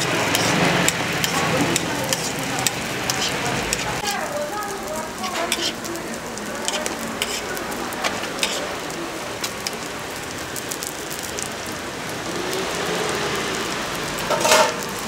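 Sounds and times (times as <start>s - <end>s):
metal tongs clicking on griddle: 0.0s - 4.2s, 5.2s - 5.9s, 6.6s - 8.7s
pancakes sizzling on a griddle: 0.0s - 15.0s.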